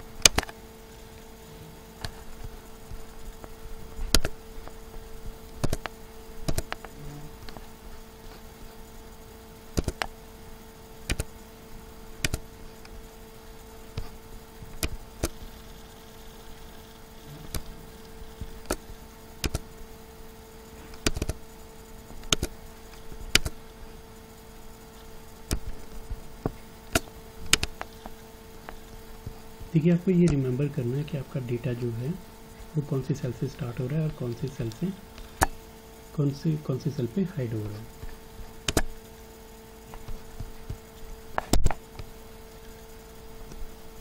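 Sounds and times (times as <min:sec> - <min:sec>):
low electrical hum: 0:00.0 - 0:44.0
computer mouse clicking: 0:00.2 - 0:00.6, 0:04.1 - 0:04.8, 0:05.4 - 0:07.6, 0:09.7 - 0:10.2, 0:11.0 - 0:11.4, 0:12.2 - 0:13.0, 0:13.9 - 0:15.8, 0:17.5 - 0:19.7, 0:20.9 - 0:21.4, 0:22.2 - 0:23.8, 0:25.0 - 0:29.4, 0:38.0 - 0:39.1, 0:39.9 - 0:42.8.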